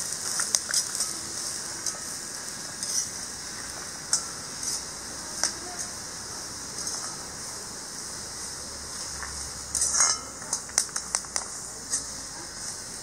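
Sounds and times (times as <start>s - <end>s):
steady high hiss of roasting: 0.0s - 13.0s
metal spatula scraping iron pan: 2.8s - 3.2s, 9.7s - 10.4s.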